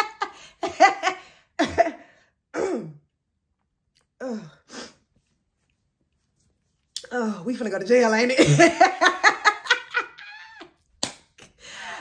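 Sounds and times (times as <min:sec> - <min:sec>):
woman laughing: 0:08.4 - 0:10.8.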